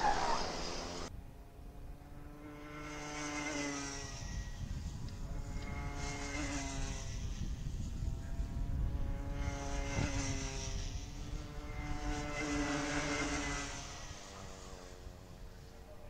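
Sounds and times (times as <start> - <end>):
kart engines passing: 0.0 - 16.0.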